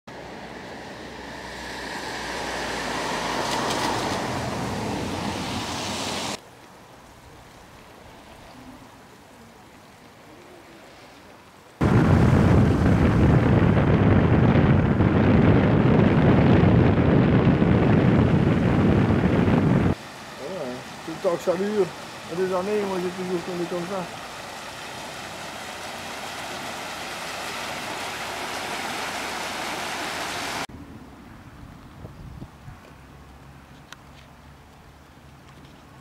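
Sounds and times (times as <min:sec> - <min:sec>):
river rushing: 0:00.1 - 0:06.4, 0:17.5 - 0:30.7
wind buffeting microphone: 0:11.8 - 0:20.0, 0:31.4 - 0:32.8.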